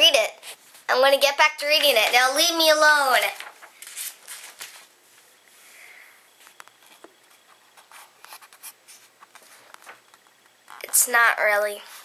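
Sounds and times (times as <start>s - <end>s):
paper rustling: 1.6s - 5.3s, 6.4s - 11.0s.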